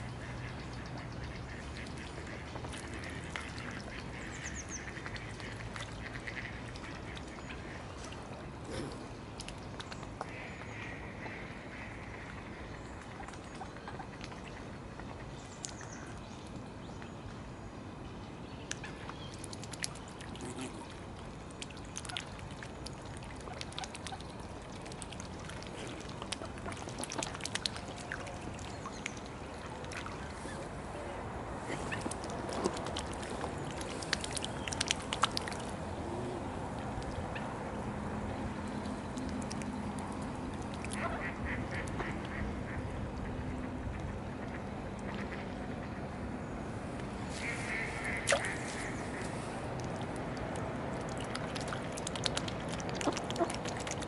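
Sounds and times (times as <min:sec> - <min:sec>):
water splashing and clicking: 0:00.0 - 0:17.5, 0:18.6 - 0:30.6, 0:31.8 - 0:45.8, 0:46.9 - 0:54.0
ducks quacking: 0:40.9 - 0:42.8, 0:47.4 - 0:49.5.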